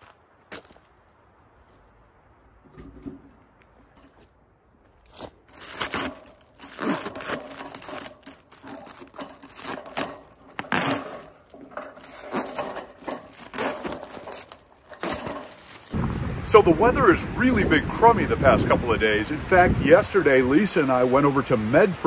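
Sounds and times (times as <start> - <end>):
plastic film crinkling and tearing: 5.1 - 16.0.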